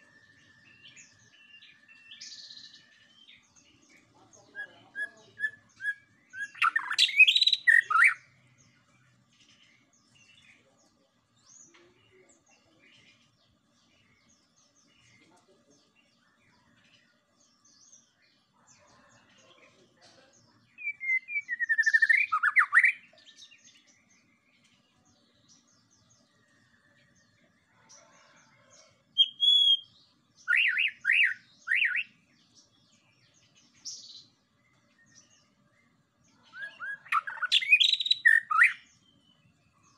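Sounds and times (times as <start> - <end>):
songbird whistling: 5.4 - 8.2, 20.8 - 23.0, 29.2 - 29.9, 30.5 - 32.1, 36.5 - 38.8.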